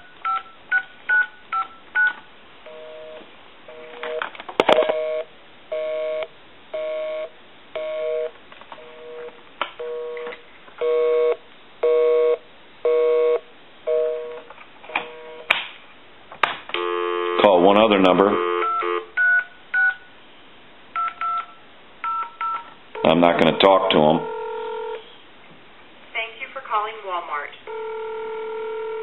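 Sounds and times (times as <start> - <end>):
telephone busy signal: 4.8 - 9.2, 16.8 - 17.6, 18.3 - 20.0, 21.0 - 25.0, 27.7 - 29.0
touch-tone digit: 21.0 - 25.0.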